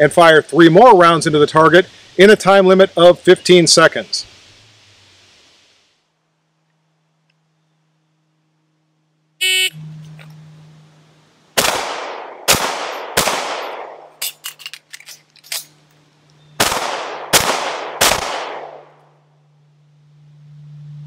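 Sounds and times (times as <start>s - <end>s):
pistol shots: 11.6s - 14.2s, 16.6s - 19.0s
metallic clicks of magazine reload: 14.2s - 16.0s.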